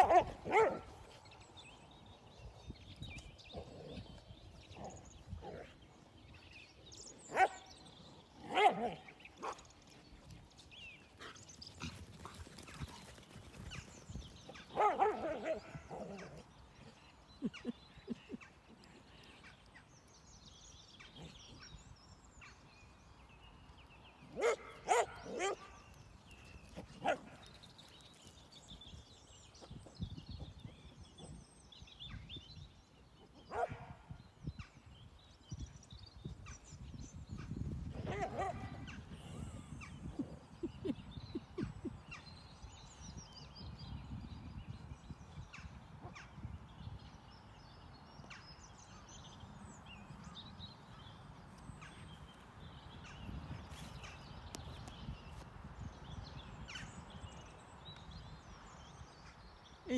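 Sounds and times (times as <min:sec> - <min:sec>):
dogs barking and yelping: 0:00.0 - 0:01.0, 0:08.4 - 0:09.6, 0:14.5 - 0:16.4, 0:24.4 - 0:25.7.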